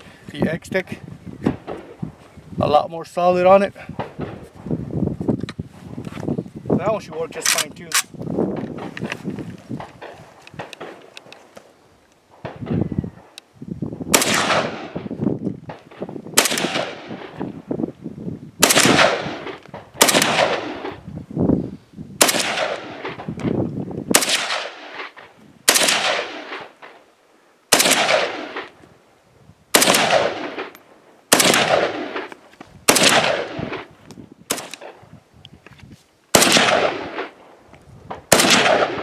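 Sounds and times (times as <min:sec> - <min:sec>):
rifle shots with echo: 0:14.1 - 0:15.1, 0:15.7 - 0:17.5, 0:18.6 - 0:21.0, 0:22.2 - 0:23.5, 0:24.1 - 0:27.0, 0:27.7 - 0:28.8, 0:29.7 - 0:33.9, 0:34.5 - 0:35.0, 0:36.3 - 0:37.4, 0:38.1 - 0:39.0.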